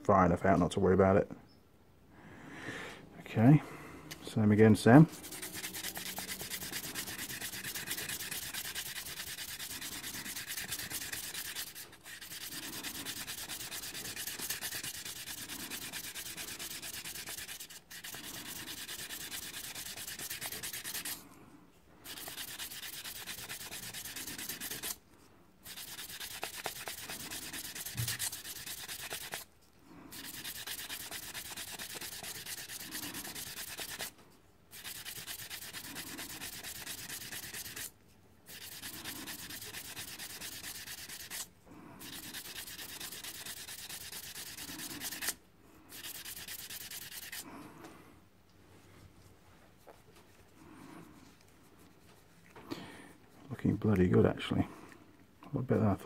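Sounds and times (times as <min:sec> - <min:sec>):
abrasive paper rasping on metal: 0:05.1 - 0:21.2, 0:22.0 - 0:25.0, 0:25.6 - 0:29.5, 0:30.1 - 0:34.1, 0:34.7 - 0:37.9, 0:38.5 - 0:47.4.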